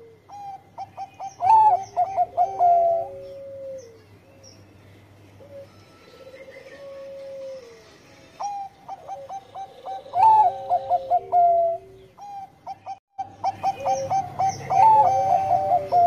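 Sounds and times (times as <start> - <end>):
dove cooing: 0.0 - 4.0, 5.4 - 16.0
soft low rolling coo: 5.4 - 7.9, 13.5 - 16.0.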